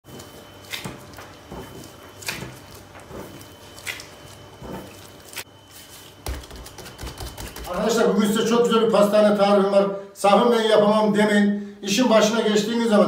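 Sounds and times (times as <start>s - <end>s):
hands handling dough: 0.1s - 7.9s.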